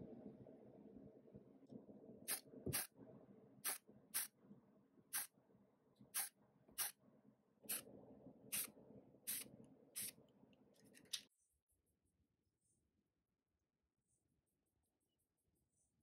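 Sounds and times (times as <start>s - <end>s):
low steady hum: 0.0s - 11.7s
spray can hissing bursts: 2.3s - 2.9s, 3.6s - 4.3s, 6.2s - 6.9s.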